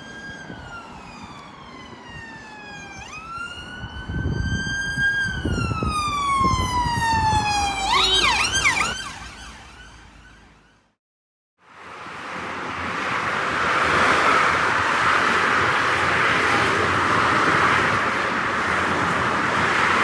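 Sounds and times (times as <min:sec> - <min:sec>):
ambulance siren wailing and yelping: 0:00.0 - 0:10.9
van engine and tyre noise: 0:00.0 - 0:11.0, 0:11.6 - 0:20.0.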